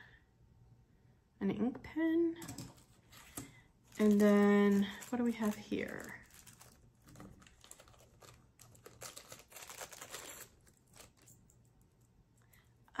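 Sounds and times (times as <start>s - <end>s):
packaging crinkling and rustling: 2.4s - 11.5s.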